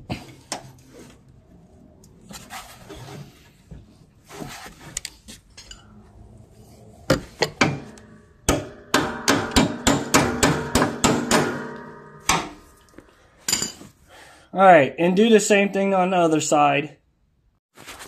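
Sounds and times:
hammer striking metal: 7.1 - 13.8.

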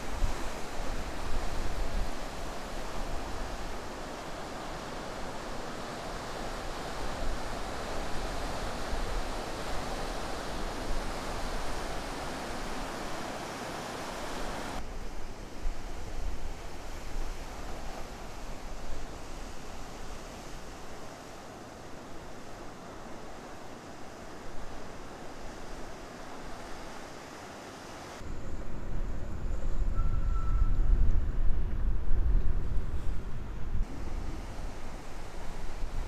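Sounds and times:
ocean waves breaking: 0.0 - 14.8.

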